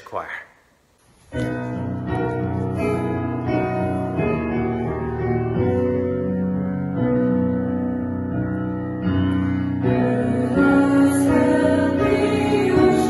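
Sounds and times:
piano playing held chords: 0:01.3 - 0:13.0.

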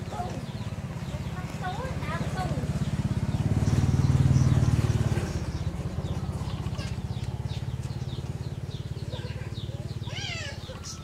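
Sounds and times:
engine low throb: 0:00.0 - 0:10.8.

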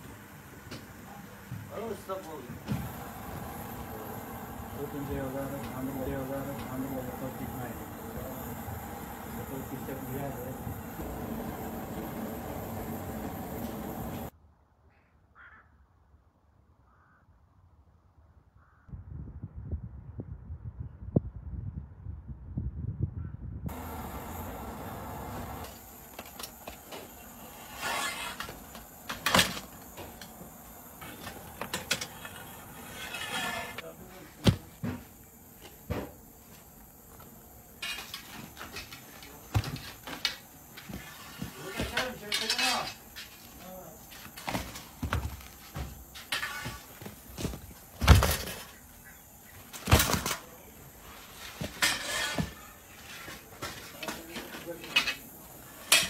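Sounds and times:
metal scoop scraping clay oven: 0:27.3 - 0:28.6, 0:31.0 - 0:33.8, 0:37.8 - 0:39.9, 0:40.8 - 0:43.6, 0:51.2 - 0:53.4.

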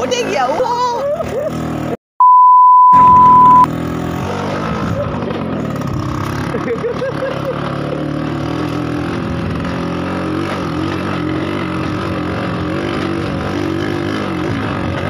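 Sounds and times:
tyres rolling on dirt track: 0:03.2 - 0:15.0
moped engine running: 0:03.3 - 0:15.0.

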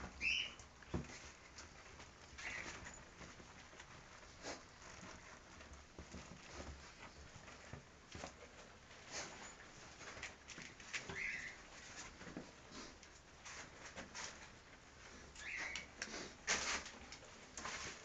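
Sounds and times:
puppies squeaking: 0:00.2 - 0:00.6.

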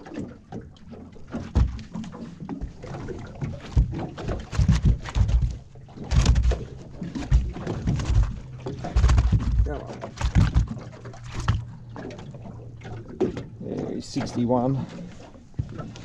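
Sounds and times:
knocks and thumps: 0:01.3 - 0:11.6.

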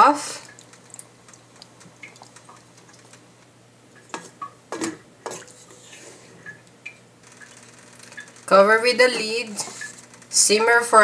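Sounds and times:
liquid simmering: 0:00.2 - 0:08.6.

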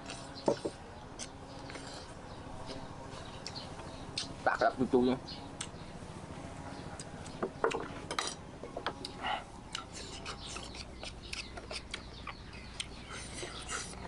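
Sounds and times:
knife scraping fruit peel: 0:09.8 - 0:12.1.

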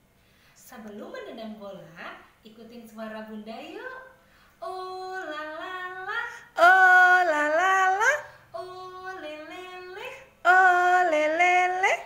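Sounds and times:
woman singing wordless phrase: 0:02.5 - 0:12.0.

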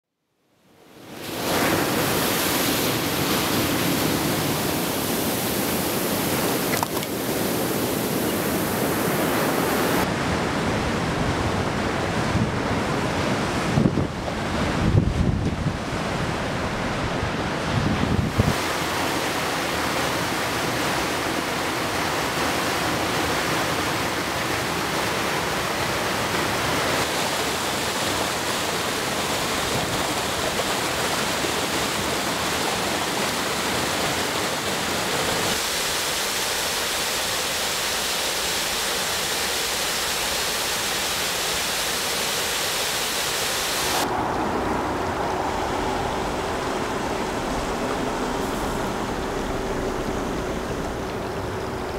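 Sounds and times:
water rushing over rocks: 0:01.0 - 0:51.9
faint steady hum: 0:44.0 - 0:51.9.

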